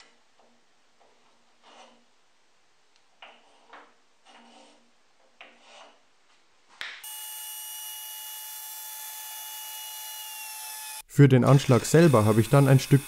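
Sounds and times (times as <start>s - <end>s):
soft scrapes and rubs: 1.0s - 2.1s, 3.2s - 6.8s
circular saw whining: 7.0s - 13.0s.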